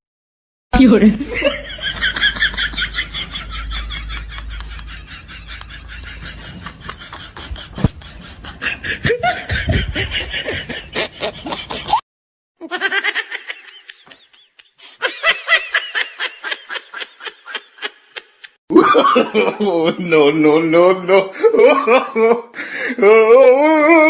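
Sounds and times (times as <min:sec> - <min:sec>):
laughter in quick bursts: 0:01.4 - 0:12.0, 0:12.6 - 0:19.4.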